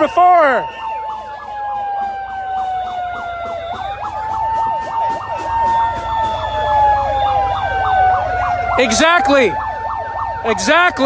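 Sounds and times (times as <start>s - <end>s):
steady siren tone: 0.0s - 11.0s
yelping siren: 0.0s - 11.0s.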